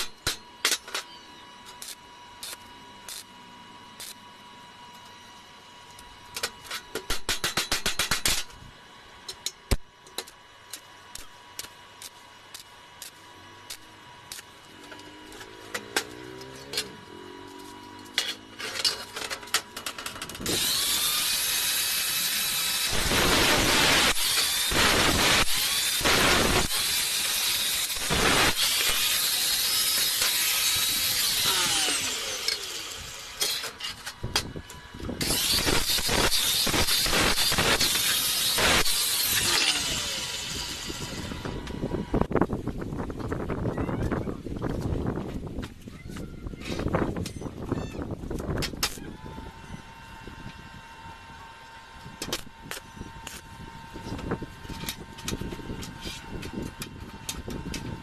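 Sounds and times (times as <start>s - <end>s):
angle grinder cutting steel: 0.0s - 4.3s, 11.1s - 41.9s
welding arc crackles: 1.6s - 4.3s, 9.6s - 16.8s, 19.8s - 33.5s, 35.2s - 41.4s.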